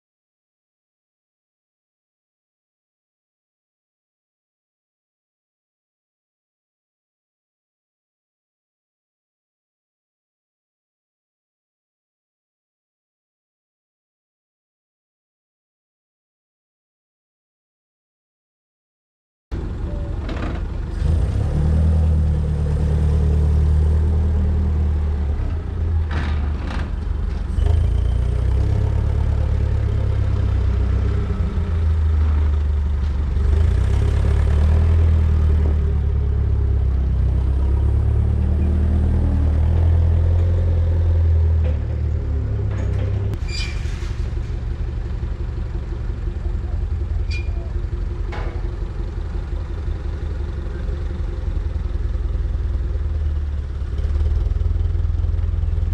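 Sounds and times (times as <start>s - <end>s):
forklift engine rumbling: 19.5s - 55.9s.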